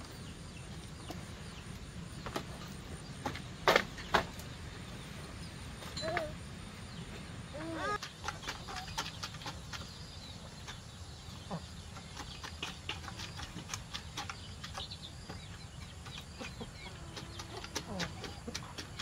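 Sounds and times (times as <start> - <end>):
chickens clucking: 5.8 - 19.0.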